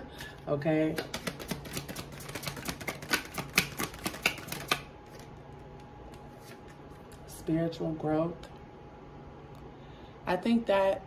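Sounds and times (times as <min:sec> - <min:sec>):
cards being shuffled: 0:00.9 - 0:07.2.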